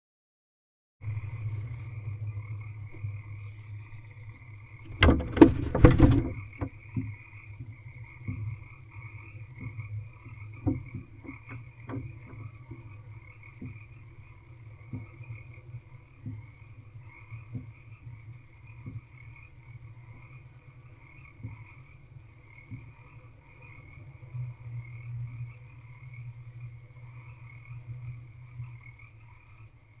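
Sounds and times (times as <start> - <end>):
frogs croaking: 1.0 - 30.0
faint ticks: 1.2 - 30.0
owl scratching in nest box: 4.9 - 6.5.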